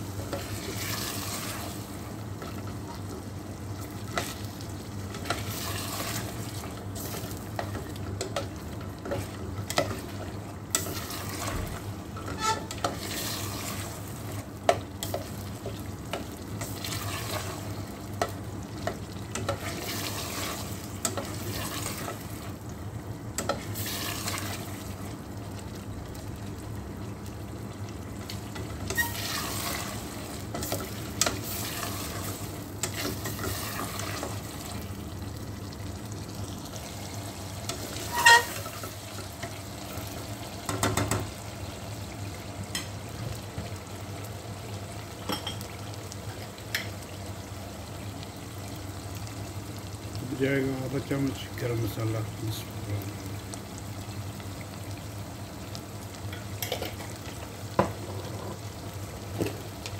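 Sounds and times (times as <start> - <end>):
sauce sizzling and bubbling: 0.0 - 59.9
spatula scraping a pot: 12.2 - 13.3, 37.8 - 38.8.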